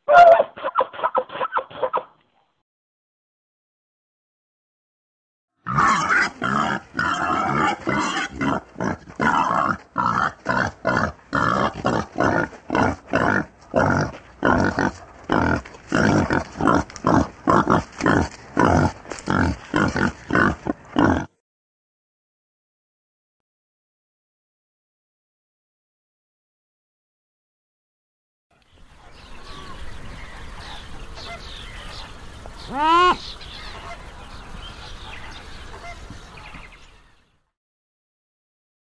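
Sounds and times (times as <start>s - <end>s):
wild boar grunting: 5.6s - 21.4s.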